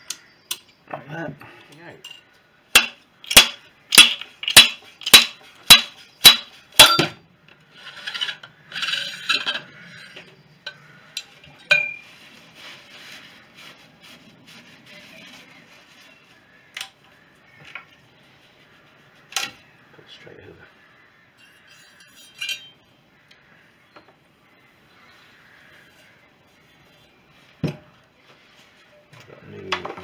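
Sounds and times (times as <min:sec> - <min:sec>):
sharp metallic knocks: 0:02.7 - 0:07.2
scraping and handling sounds: 0:04.0 - 0:19.7
light metal clinks: 0:21.4 - 0:22.8.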